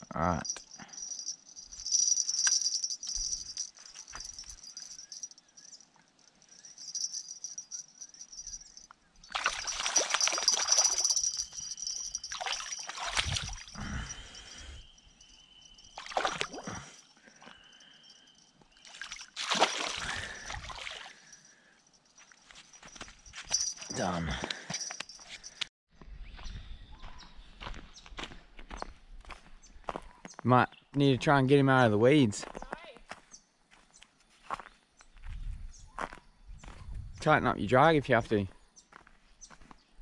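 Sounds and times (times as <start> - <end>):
fish thrashing and splashing: 9.3 - 13.8, 16.0 - 16.9, 18.8 - 21.2.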